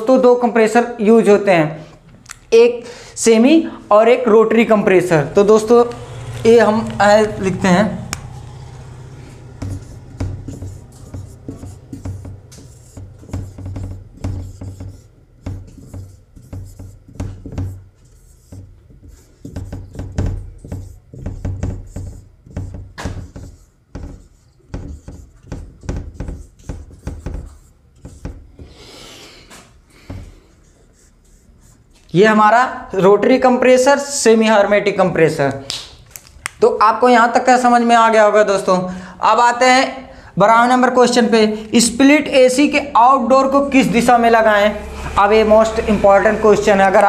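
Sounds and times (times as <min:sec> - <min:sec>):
marker squeaking on whiteboard: 0:05.0 - 0:28.8, 0:29.6 - 0:32.3.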